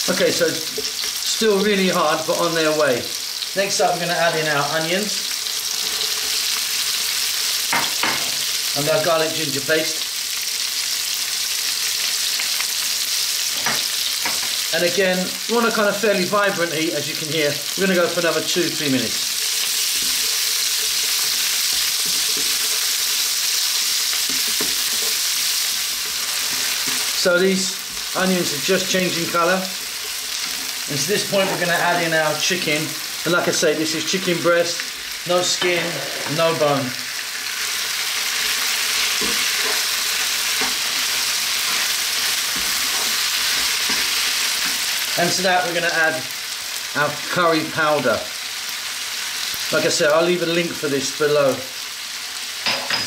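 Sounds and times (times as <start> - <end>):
vegetables sizzling in hot oil: 0.0 - 53.0
wooden spoon stirring in pan: 19.2 - 32.7, 37.5 - 45.2
spatula scraping a pan: 38.4 - 45.1.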